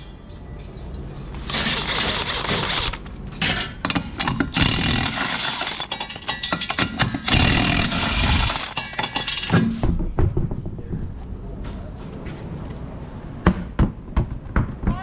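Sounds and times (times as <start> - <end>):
impact wrench rattling: 1.4 - 10.0.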